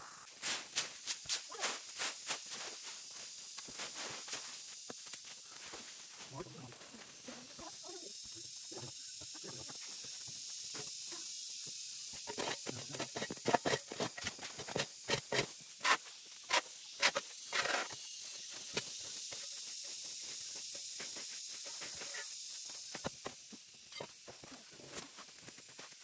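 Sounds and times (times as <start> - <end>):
steady high hiss: 0.0 - 26.0
broom sweeping concrete: 0.3 - 6.3, 17.8 - 23.4
rake scraping leaves: 0.3 - 6.3, 12.2 - 23.3.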